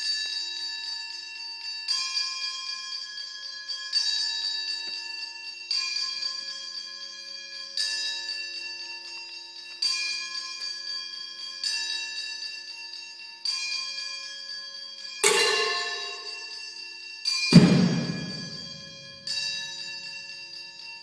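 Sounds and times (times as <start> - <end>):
struck metal ringing: 15.2 - 16.6, 17.5 - 19.3.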